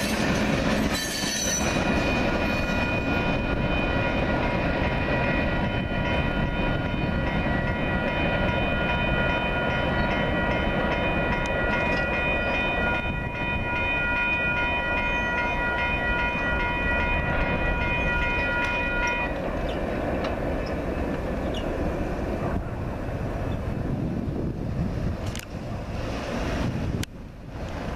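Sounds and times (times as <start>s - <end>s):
crossing warning bell ringing: 0.0s - 21.8s
train rumbling on tracks: 0.0s - 27.9s.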